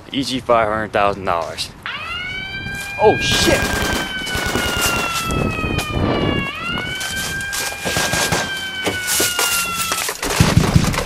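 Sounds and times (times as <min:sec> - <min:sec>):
siren wailing: 0:01.8 - 0:10.2.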